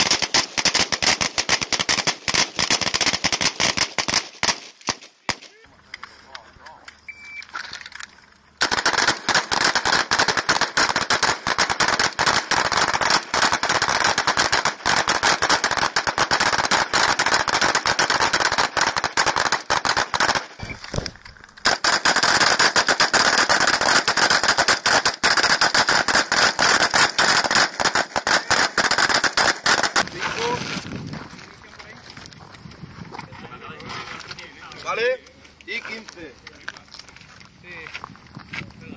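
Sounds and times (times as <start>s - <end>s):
rapid rifle fire: 0.0s - 5.5s, 8.6s - 20.6s, 21.6s - 30.1s.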